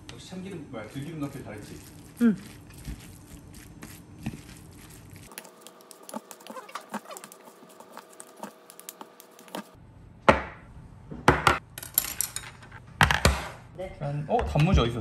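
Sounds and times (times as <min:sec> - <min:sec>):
wooden spoons scraping steel bowl: 0:00.9 - 0:09.8.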